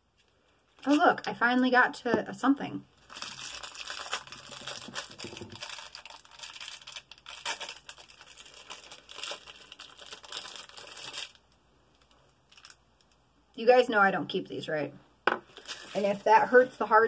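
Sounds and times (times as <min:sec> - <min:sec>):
plastic wrapping crinkling and tearing: 0:00.2 - 0:01.4, 0:03.0 - 0:12.8, 0:15.5 - 0:16.7.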